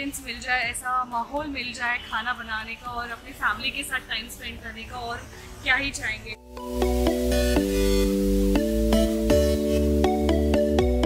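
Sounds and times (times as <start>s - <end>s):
held chords over deep bass: 6.4s - 11.0s.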